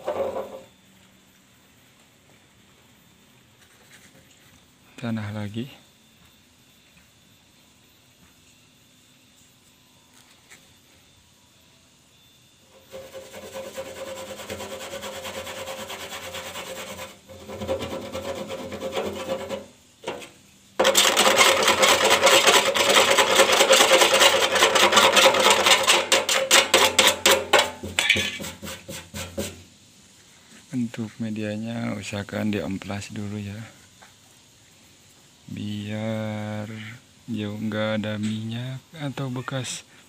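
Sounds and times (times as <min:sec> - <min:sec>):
fingers scraping gritty paste on metal: 0:12.8 - 0:29.6.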